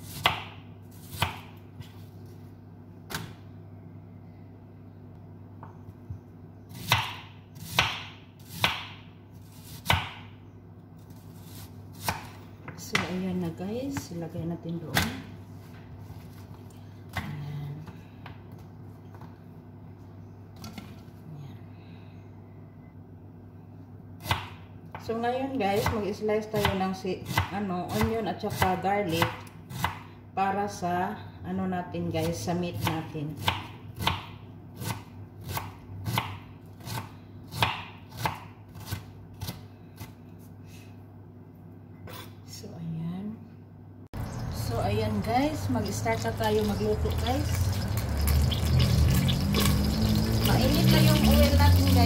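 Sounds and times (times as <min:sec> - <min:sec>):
knife chopping on wooden board: 0:00.0 - 0:01.5, 0:06.7 - 0:10.3, 0:32.8 - 0:40.2
steady low hum: 0:00.0 - 0:37.6, 0:38.6 - 0:52.0.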